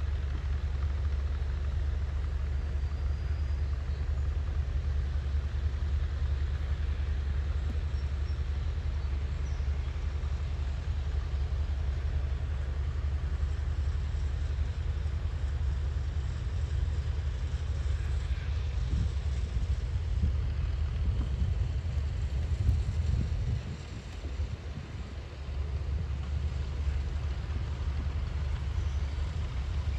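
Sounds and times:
distant tractor rumbling: 0:00.0 - 0:29.9
wind buffeting microphone: 0:16.1 - 0:29.9.

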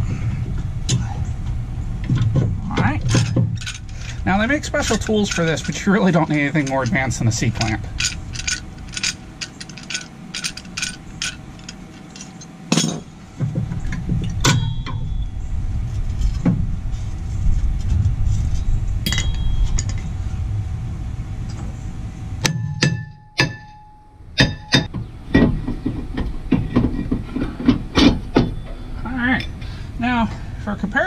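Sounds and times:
steady low rumble: 0:00.0 - 0:31.0
hand tools clinking on metal: 0:03.0 - 0:13.1.

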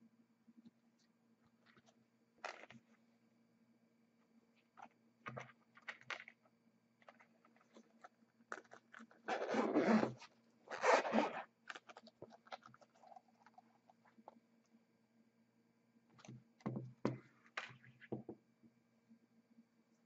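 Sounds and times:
zipper being pulled open: 0:08.6 - 0:11.8.

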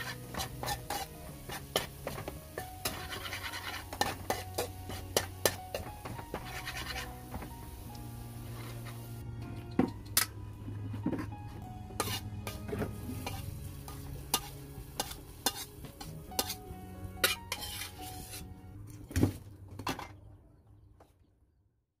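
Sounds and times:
metal ladle scraping in wok: 0:00.0 - 0:07.3, 0:11.9 - 0:18.5.

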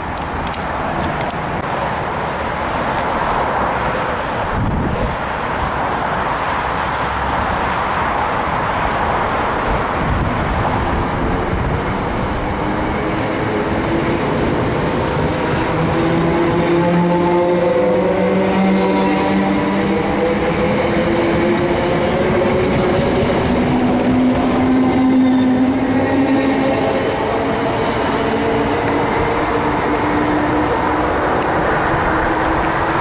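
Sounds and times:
electric train hum: 0:00.0 - 0:33.0
train wheels rumbling: 0:07.3 - 0:33.0.

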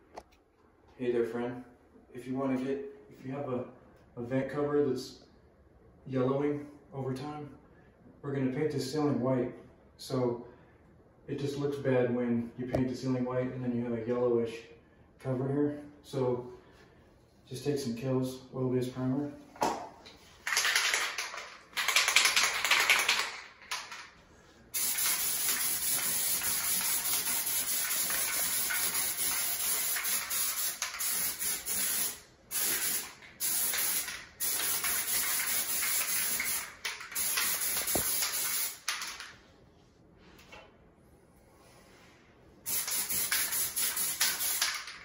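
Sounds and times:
spray can hissing: 0:24.8 - 0:39.0, 0:42.7 - 0:44.9.

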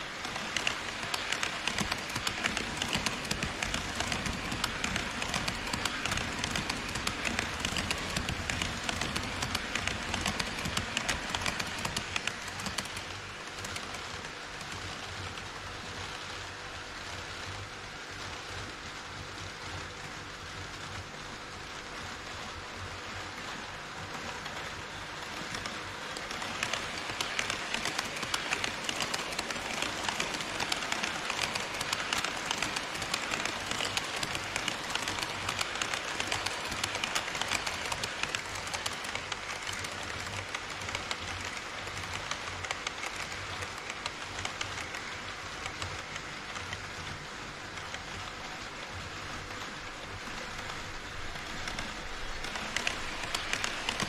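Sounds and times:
model train wheels and motors: 0:00.0 - 0:54.0
rapid clicking over rail joints: 0:24.4 - 0:48.3, 0:50.3 - 0:54.0.

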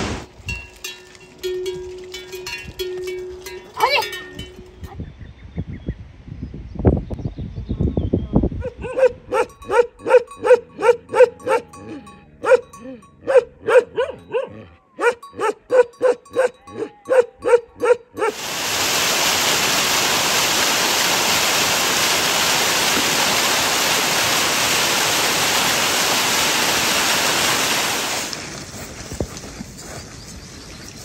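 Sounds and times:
large dog barking: 0:08.6 - 0:18.4
small waterfall splashing: 0:18.3 - 0:28.5.

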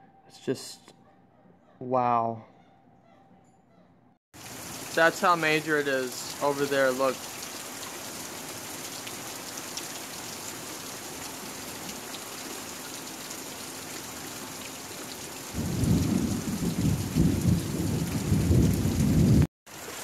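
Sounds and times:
heavy rain pouring: 0:04.4 - 0:20.0
rolling thunder: 0:15.6 - 0:19.5.

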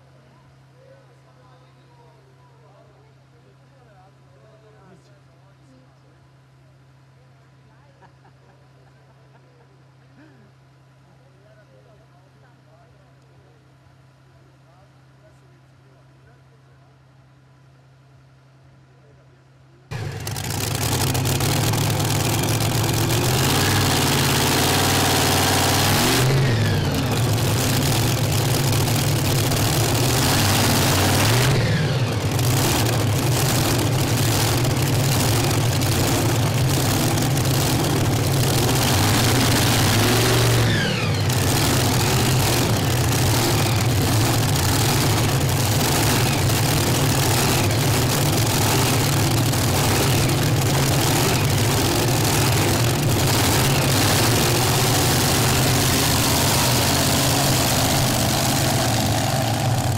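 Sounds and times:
tractor engine howling: 0:19.9 - 0:59.9.

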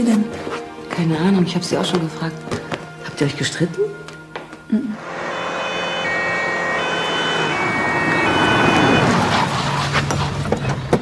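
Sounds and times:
ambulance two-tone siren: 0:05.0 - 0:09.9.

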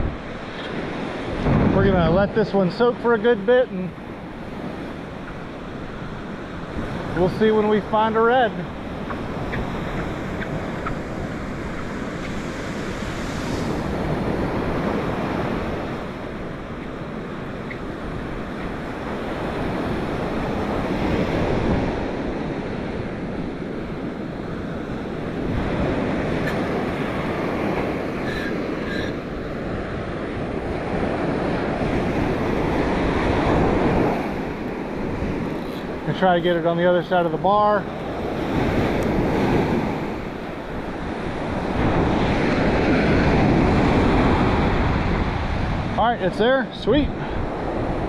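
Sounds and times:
surf breaking on beach: 0:00.0 - 0:48.0
wind buffeting microphone: 0:00.0 - 0:48.0.

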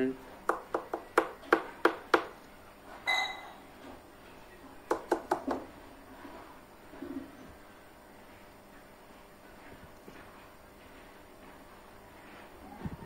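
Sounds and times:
sharp taps: 0:00.5 - 0:02.3, 0:04.9 - 0:05.6.

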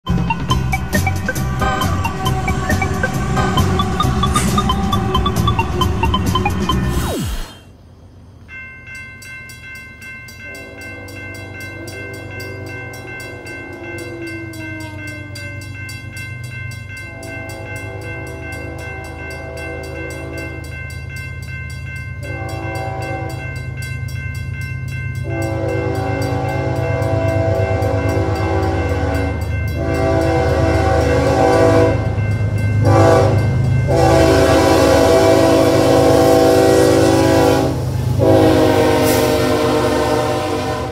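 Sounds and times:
locomotive rumble: 0:00.0 - 0:08.4, 0:09.4 - 0:40.9
railroad crossing bell ringing: 0:00.1 - 0:06.9, 0:07.5 - 0:40.9
train horn blowing: 0:10.4 - 0:15.8, 0:17.0 - 0:20.7, 0:22.2 - 0:23.6, 0:25.2 - 0:40.9.

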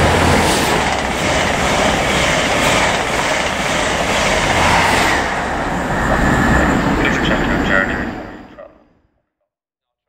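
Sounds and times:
train passing at speed: 0:00.0 - 0:09.0.

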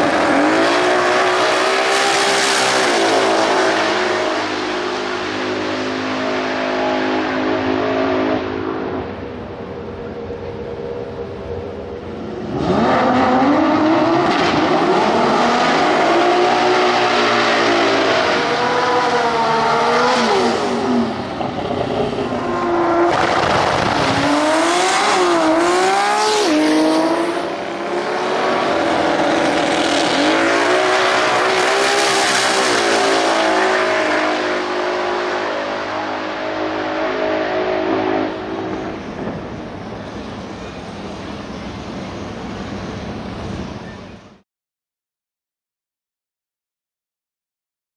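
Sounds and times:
drag car engine revving: 0:12.3 - 0:39.5.

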